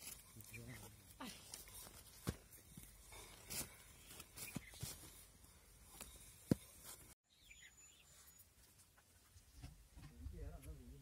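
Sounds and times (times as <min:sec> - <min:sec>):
high thin bird chirp: 0:07.3 - 0:08.6.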